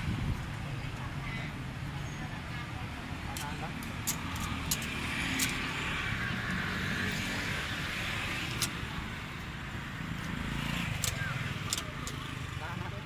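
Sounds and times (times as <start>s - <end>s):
traffic rumble and hiss: 0.0s - 13.0s
sharp clicks: 3.3s - 5.7s, 8.5s - 8.9s, 10.9s - 12.4s.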